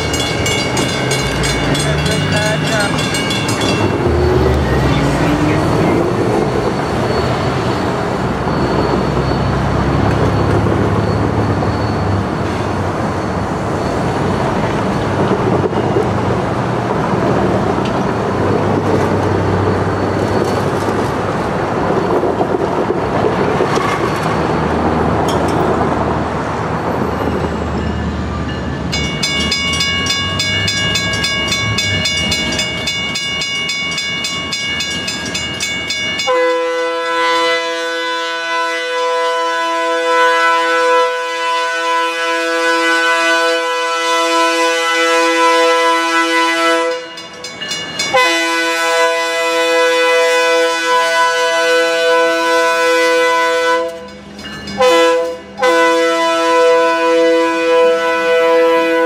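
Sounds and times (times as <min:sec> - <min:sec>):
diesel locomotives running: 0:00.0 - 0:59.0
passing street traffic: 0:00.0 - 0:59.0
locomotive horn chord: 0:36.3 - 0:47.2, 0:48.1 - 0:54.1, 0:54.8 - 0:59.0.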